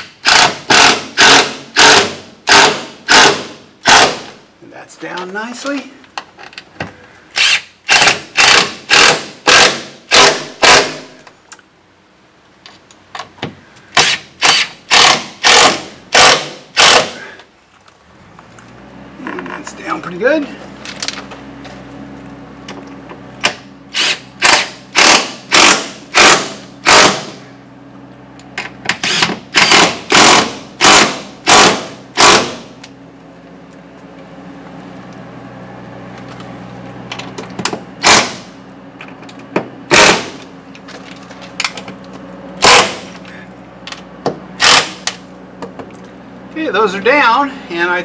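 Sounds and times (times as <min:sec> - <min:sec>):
cordless drill driving screws: 0:07.4 - 0:10.8, 0:14.0 - 0:17.1, 0:23.9 - 0:27.1, 0:29.0 - 0:32.4.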